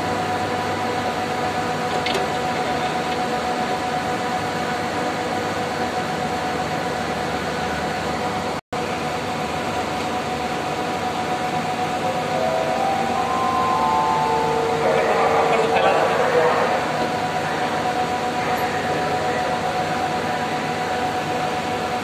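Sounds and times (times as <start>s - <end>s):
mid-pitched machine hum: 11.2s - 18.8s.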